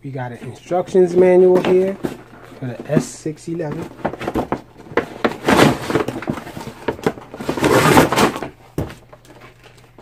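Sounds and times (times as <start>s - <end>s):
packaging rustling and scraping: 0.2s - 10.0s.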